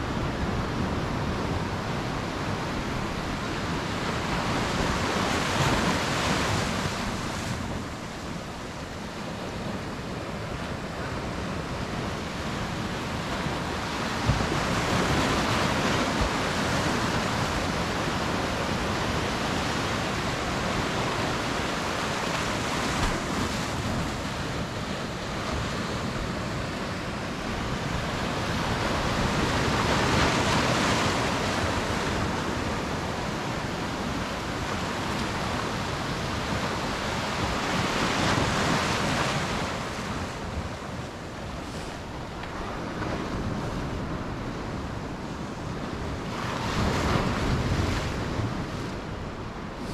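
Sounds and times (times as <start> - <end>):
waves breaking over rocks: 13.0 - 49.9.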